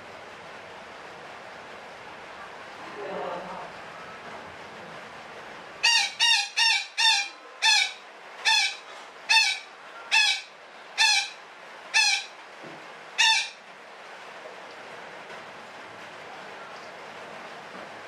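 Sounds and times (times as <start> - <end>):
parakeet squawking: 5.8 - 12.3, 13.2 - 13.6.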